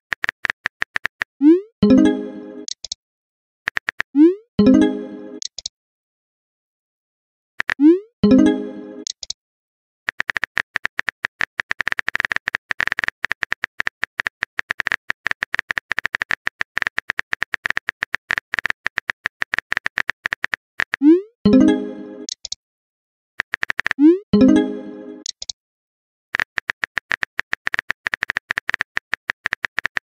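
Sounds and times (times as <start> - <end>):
keyboard typing clicks: 1.9 - 3.0, 3.7 - 4.2, 5.4 - 5.7, 7.6 - 9.4, 10.1 - 22.6, 23.4 - 24.6, 25.2 - 25.6, 26.4 - 30.0.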